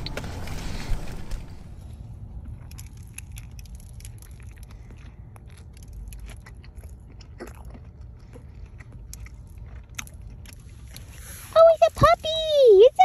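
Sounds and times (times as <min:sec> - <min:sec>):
low steady hum: 0:00.0 - 0:13.0
person chewing food: 0:02.2 - 0:11.5
mouth clicks and soft crunches: 0:02.2 - 0:13.0.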